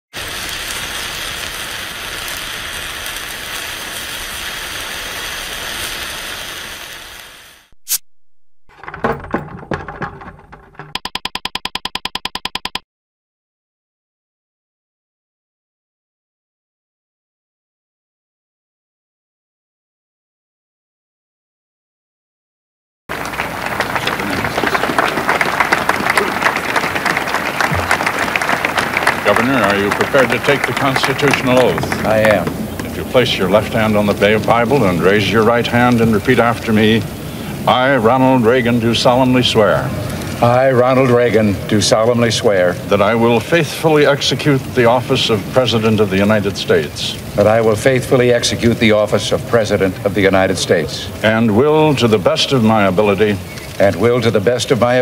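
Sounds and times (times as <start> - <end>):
dense crackling noise: 0.1 - 12.8, 23.1 - 55.0
crowd applauding: 23.1 - 36.5.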